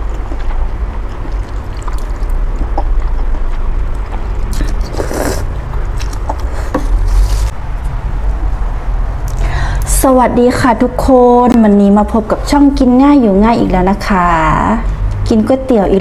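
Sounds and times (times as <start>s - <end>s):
steady low rumble: 0.0s - 16.0s
person slurping noodles: 1.2s - 2.9s, 4.1s - 7.5s.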